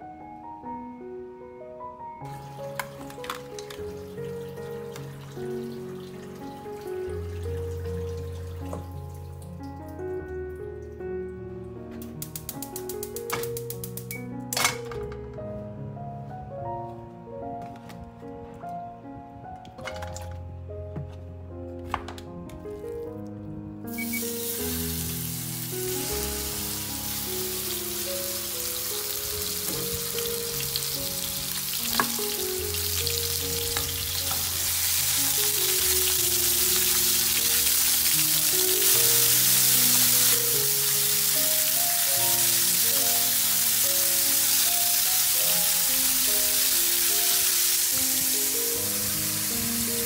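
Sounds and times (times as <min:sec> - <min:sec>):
light background music: 0:00.0 - 0:50.0
pork sizzling in a frying pan: 0:12.2 - 0:14.2, 0:23.9 - 0:50.0.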